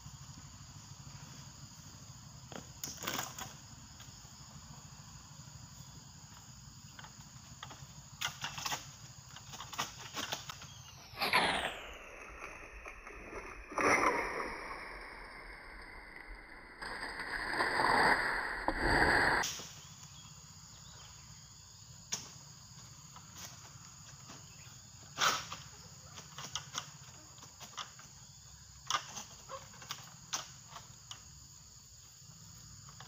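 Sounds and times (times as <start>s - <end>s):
insect chirring: 0.0s - 33.0s.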